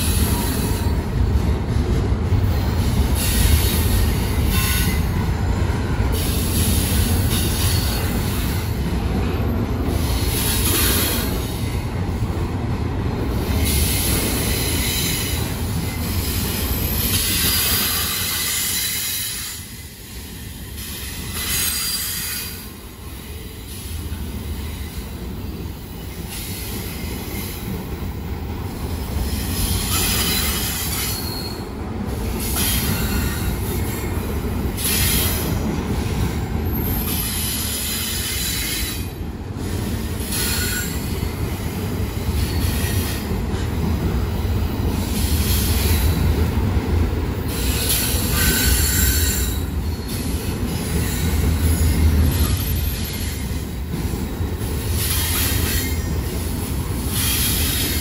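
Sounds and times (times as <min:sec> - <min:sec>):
train rumbling past: 0:00.0 - 0:58.0
metallic wheel squeal: 0:29.9 - 0:31.6.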